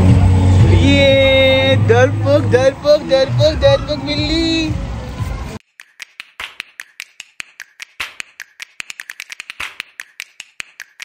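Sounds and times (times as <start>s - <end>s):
rapid sharp clicks: 5.6s - 11.0s.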